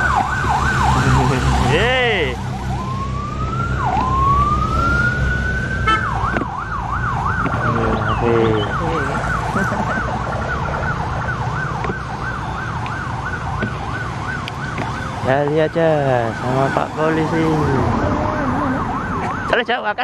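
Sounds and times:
low engine rumble: 0.0s - 15.4s
police siren wail and yelp: 0.0s - 20.0s.

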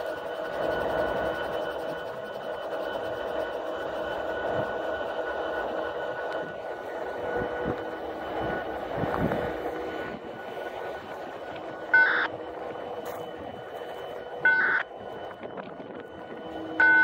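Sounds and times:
diesel locomotive idling: 0.0s - 17.0s
short loud beeps: 14.4s - 14.9s, 16.8s - 17.0s.

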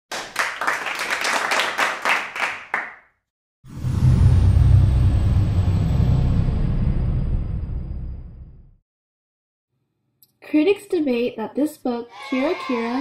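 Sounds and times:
audience applause: 0.1s - 2.9s
deep rumbling sound effect: 3.7s - 8.8s
high shimmer sliding down: 12.1s - 13.0s.

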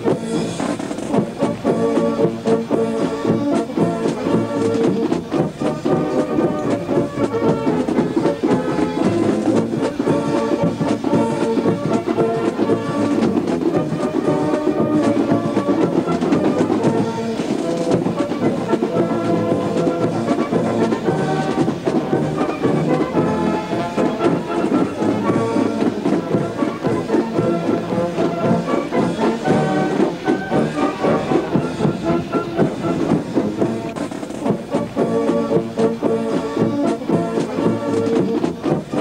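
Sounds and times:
brass band music: 0.0s - 39.0s.

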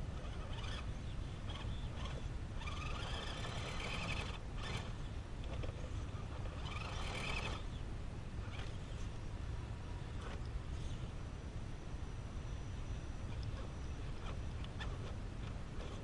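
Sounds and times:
rc crawler motor whining: 0.0s - 7.8s, 8.4s - 9.0s, 10.2s - 11.0s, 13.2s - 16.0s.

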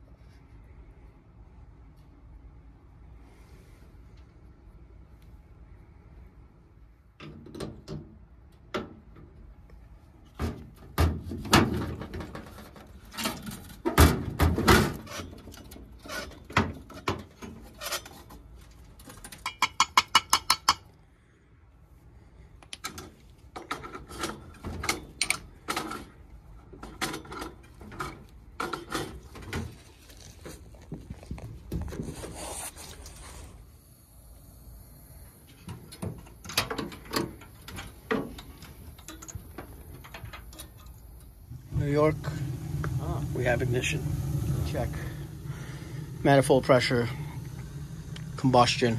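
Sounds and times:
faint high hiss: 39.8s - 48.9s.

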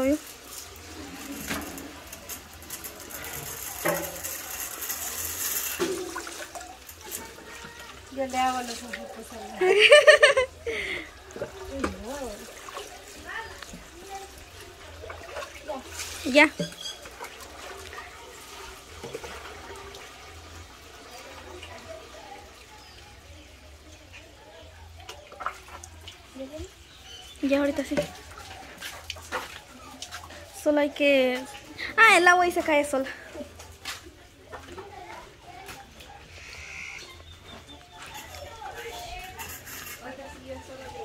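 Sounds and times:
water splashing into basin: 0.0s - 24.4s.

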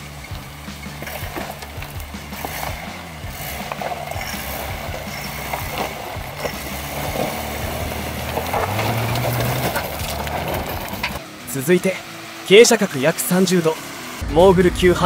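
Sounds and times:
gravel crunching under tyres: 0.0s - 13.8s
truck engine at low revs: 0.0s - 15.0s
stones clicking: 3.5s - 11.2s.

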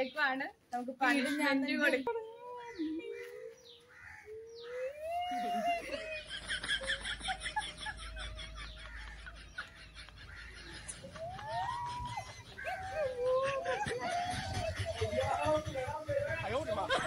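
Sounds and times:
women laughing: 4.5s - 17.0s.

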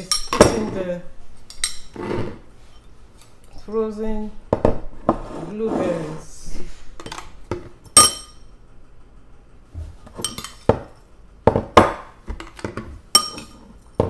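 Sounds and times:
metal spoon clinking on bowl: 0.0s - 0.6s, 8.0s - 8.4s, 13.1s - 13.6s.

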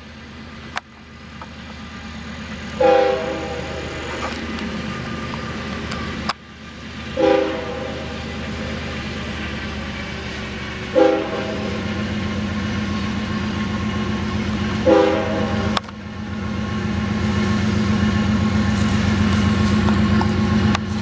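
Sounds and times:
diesel locomotive engine rumble: 0.0s - 21.0s
multi-note air horn blasts: 2.8s - 3.9s, 7.2s - 8.2s, 10.9s - 11.8s, 14.8s - 15.8s.

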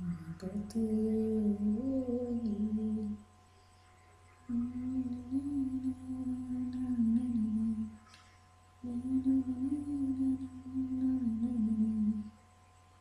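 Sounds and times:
woman humming: 0.0s - 3.2s, 4.5s - 8.0s, 8.8s - 12.3s.

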